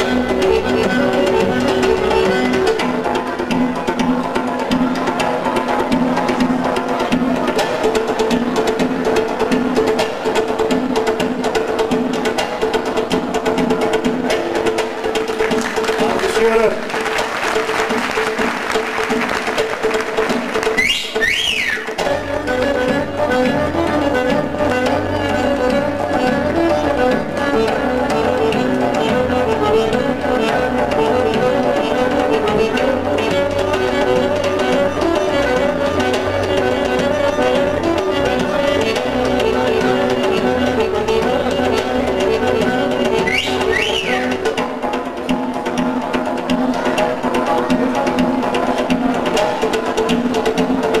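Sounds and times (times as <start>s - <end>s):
folk dance melody: 0.0s - 51.0s
steady drum beat: 1.5s - 24.6s.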